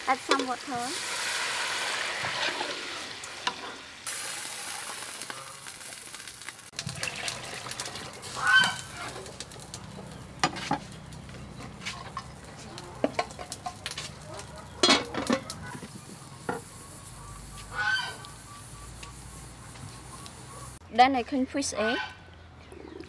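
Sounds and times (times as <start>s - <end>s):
water sizzling in hot pot: 0.0s - 10.8s, 14.8s - 20.8s.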